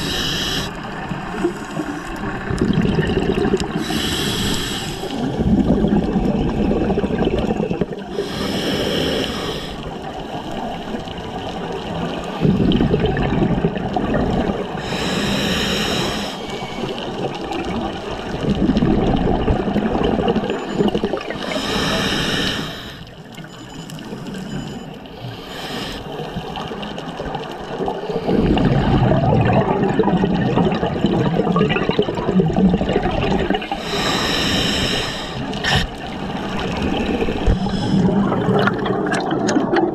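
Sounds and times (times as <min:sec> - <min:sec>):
regulator exhaust bubbles: 0:02.3 - 0:03.8.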